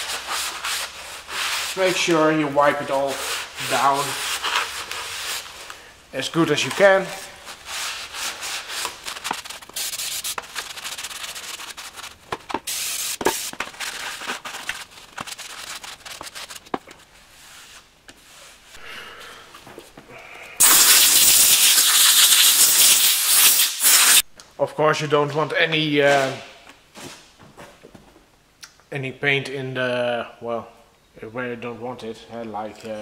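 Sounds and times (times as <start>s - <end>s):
aerosol spray hiss: 9.7s - 10.4s, 12.7s - 13.5s, 20.6s - 24.2s.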